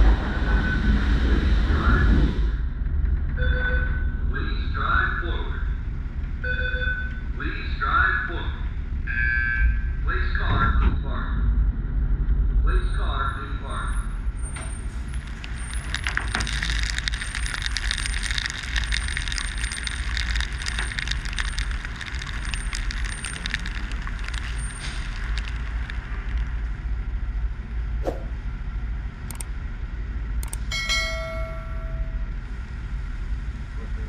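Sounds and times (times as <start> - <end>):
car wash machinery rumble: 0.0 - 3.4, 11.4 - 34.0
short ringing chime: 30.7 - 32.3.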